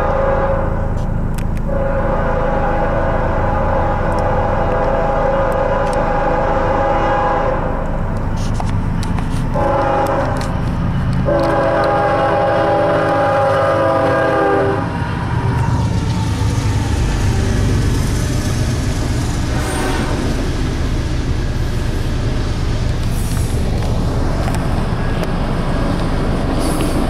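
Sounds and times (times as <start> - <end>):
train air horn blasts: 0.0 - 15.0, 19.4 - 20.4
freight train rumbling past: 0.0 - 27.0
wheel noise on rails: 0.0 - 27.0.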